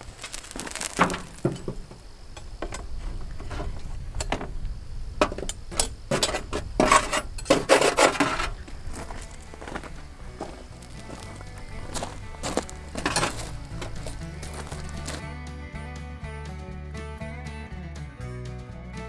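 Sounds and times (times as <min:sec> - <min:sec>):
wind rumble on microphone: 0:02.1 - 0:15.0
metal tongs clinking on charcoal starter: 0:05.2 - 0:08.6, 0:12.8 - 0:15.1.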